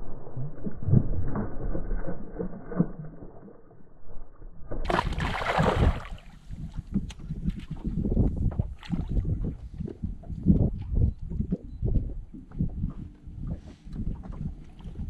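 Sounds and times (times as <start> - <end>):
water lapping against boat hull: 4.8 - 15.0.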